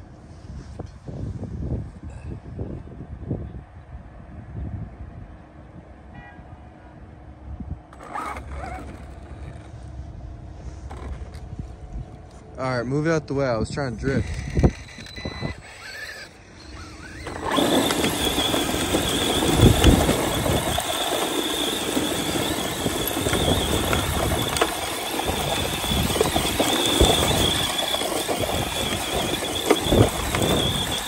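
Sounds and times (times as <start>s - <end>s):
electric motor whining: 7.9s - 9.8s, 14.0s - 31.0s
tyres churning sand: 15.6s - 31.0s.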